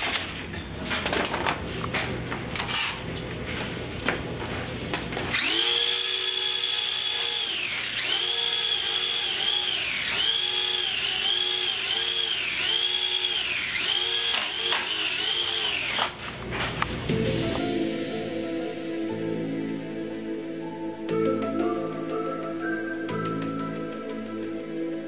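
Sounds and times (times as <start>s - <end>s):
toy high-pitched whine: 5.4s - 16.1s.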